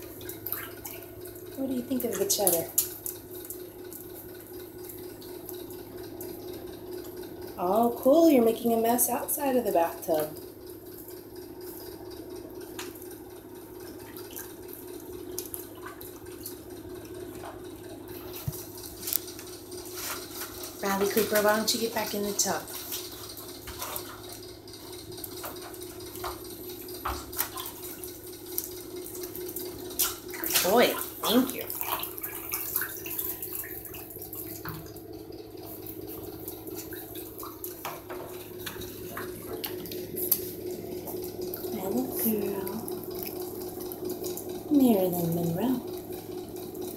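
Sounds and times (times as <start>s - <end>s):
steady low hum: 0.0s - 46.9s
water running in bathtub: 0.0s - 46.9s.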